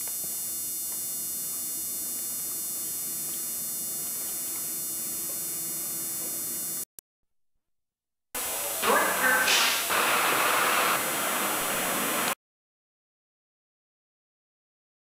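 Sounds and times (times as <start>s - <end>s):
electrical hum and hiss: 0.0s - 6.9s, 8.4s - 12.4s.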